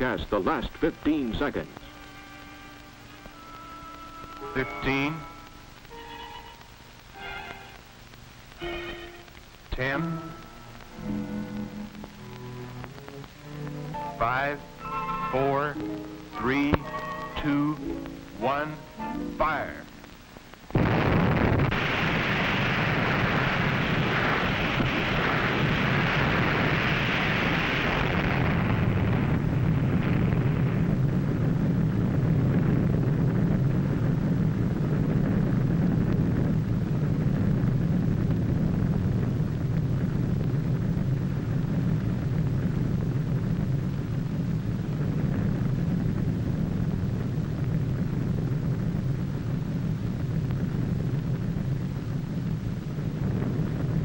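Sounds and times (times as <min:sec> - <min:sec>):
underwater explosion roar: 0:20.7 - 0:54.0.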